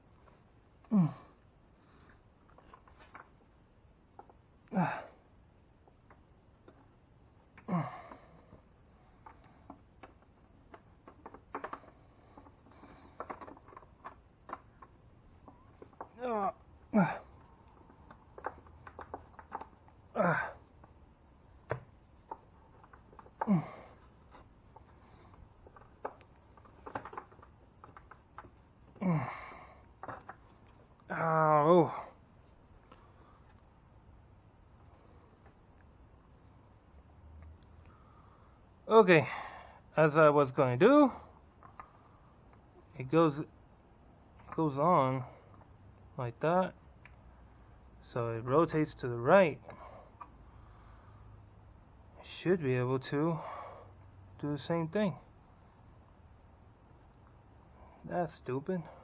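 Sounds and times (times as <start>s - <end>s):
person grunting: 0.9s - 1.4s, 4.7s - 5.2s, 7.7s - 8.2s, 16.2s - 17.3s, 20.2s - 20.6s, 23.4s - 24.0s, 29.0s - 29.6s
faint clicks of parts handled: 2.0s - 4.5s, 8.5s - 16.2s.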